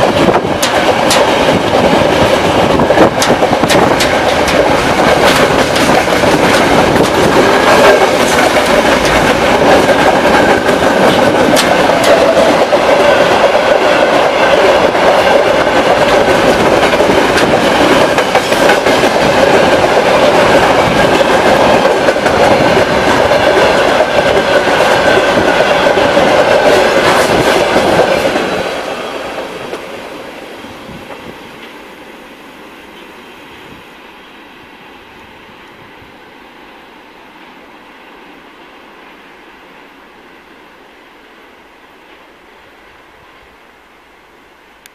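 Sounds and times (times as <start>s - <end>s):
freight train wheels on rails: 0.0s - 43.7s.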